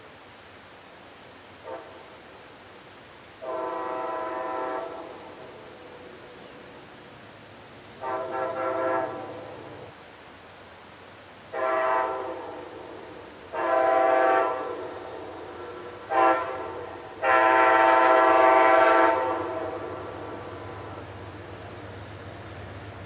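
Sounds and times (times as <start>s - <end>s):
locomotive air horn blasts: 3.4s - 5.6s, 8.0s - 9.9s, 11.5s - 21.4s.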